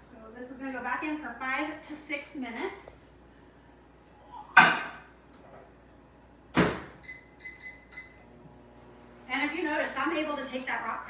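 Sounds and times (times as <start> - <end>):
keypad beeps: 7.0 - 8.2.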